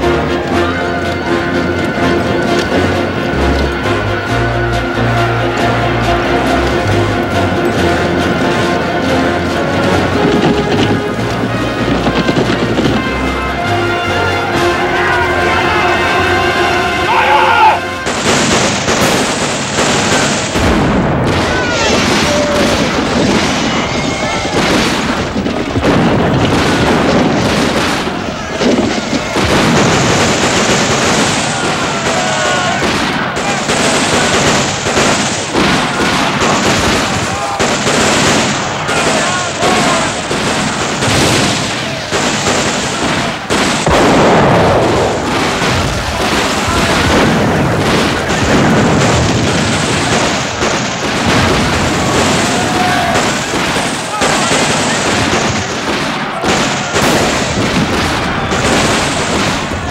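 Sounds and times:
cannon blasts: 0:00.0 - 0:59.9
musket and rifle gunfire: 0:00.0 - 0:59.9
explosive booms: 0:05.0 - 0:17.1, 0:17.8 - 0:59.9
men shouting and yelling: 0:13.1 - 0:18.0, 0:21.3 - 0:24.8, 0:30.4 - 0:41.0, 0:51.8 - 0:59.4.

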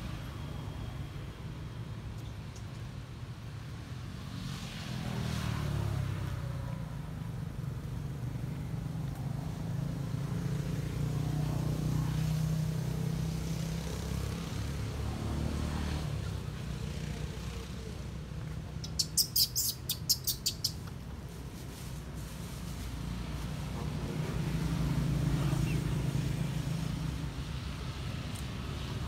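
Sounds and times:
vehicle engine rumbling: 0:06.7 - 0:29.0.

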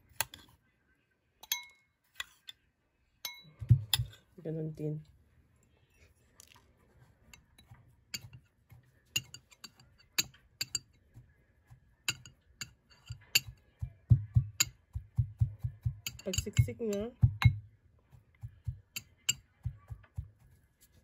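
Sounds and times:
glass tapping on glass: 0:15.9 - 0:17.6.

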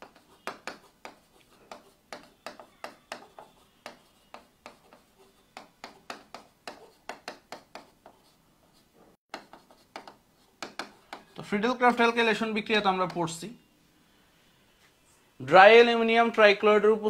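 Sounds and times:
marker pen writing on whiteboard: 0:00.0 - 0:13.4.

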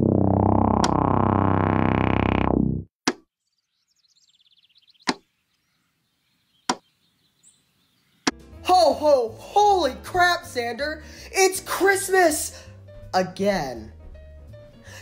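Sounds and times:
synthesizer music: 0:00.0 - 0:02.9.

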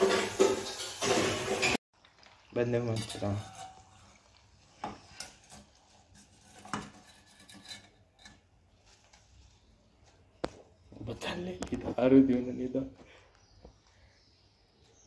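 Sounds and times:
skimmer scraping metal pan: 0:00.0 - 0:01.8, 0:02.8 - 0:08.4.

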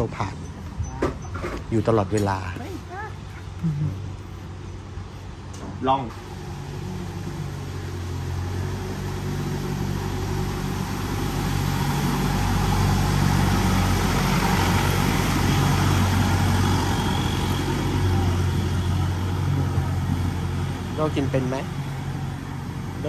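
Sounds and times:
boat engine running: 0:06.2 - 0:23.0
wash of boat wake: 0:06.2 - 0:23.0.

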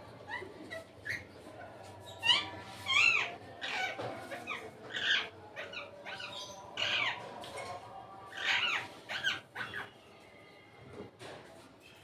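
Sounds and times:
parrots chattering: 0:02.1 - 0:07.2, 0:08.3 - 0:10.1.

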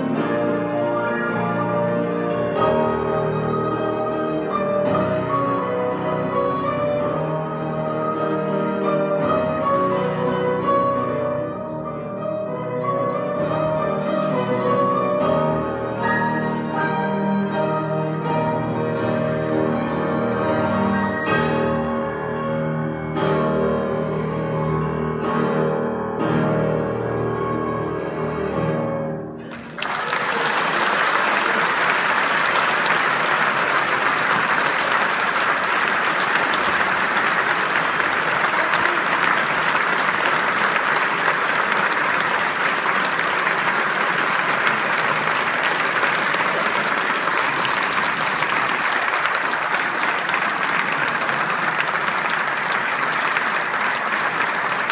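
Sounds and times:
piano trio playing classical piece: 0:00.0 - 0:29.6
audience applauding: 0:29.4 - 0:54.9.

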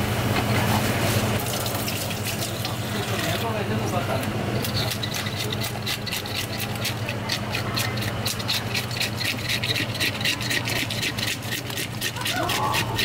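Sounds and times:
fish scaler rasping scales off: 0:04.6 - 0:13.0.

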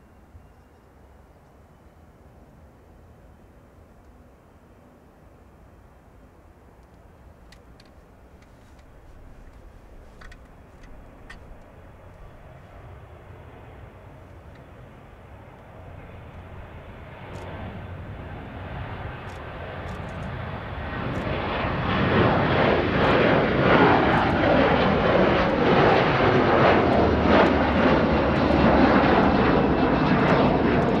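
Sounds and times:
jet airliner taking off: 0:08.2 - 0:31.0.

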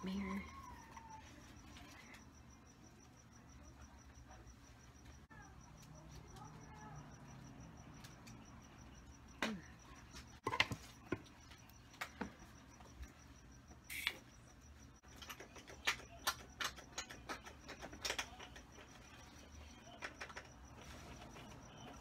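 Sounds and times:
faint high-pitched pulsing tone: 0:00.0 - 0:15.1
objects knocking and clicking: 0:09.3 - 0:12.8, 0:15.0 - 0:21.5.

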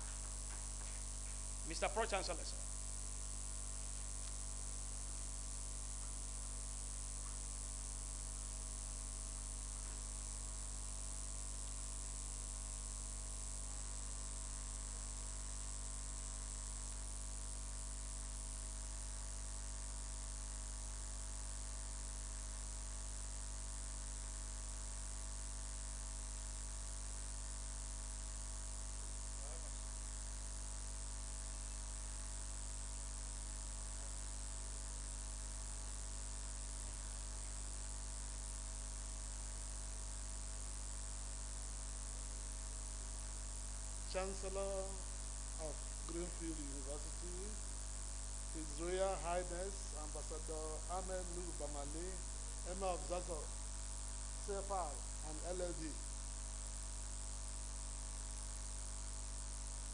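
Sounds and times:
electrical mains hum: 0:00.0 - 0:59.9
high hiss: 0:44.0 - 0:47.6, 0:48.5 - 0:53.5.

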